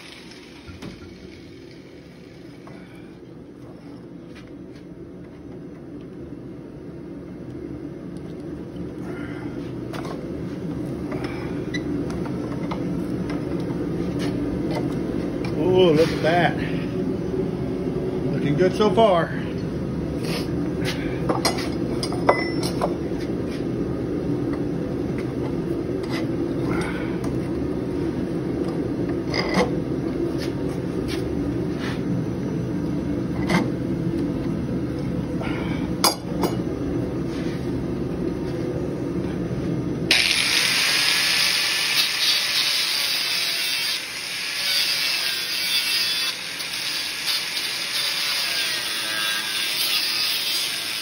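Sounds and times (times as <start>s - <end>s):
angle grinder grinding steel: 0.0s - 2.6s, 40.1s - 51.0s.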